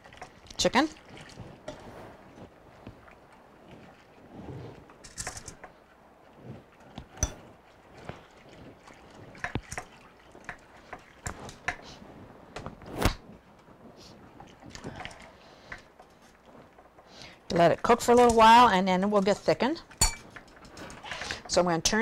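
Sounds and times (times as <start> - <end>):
liquid sloshing: 0.0 - 22.0
wire whisk scraping a pot: 17.5 - 22.0.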